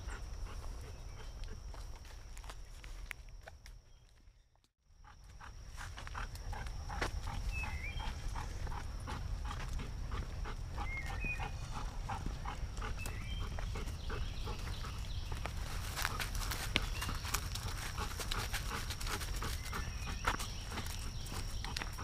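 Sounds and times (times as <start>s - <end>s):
bird chirps: 7.3s - 8.4s, 10.8s - 15.6s
footsteps crunching on leaves: 14.6s - 22.0s.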